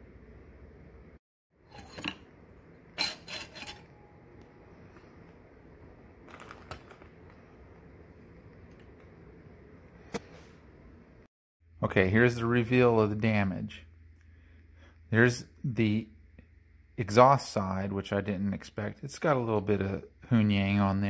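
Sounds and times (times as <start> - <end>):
metal engine parts clinking: 1.7 - 2.3, 3.0 - 4.2.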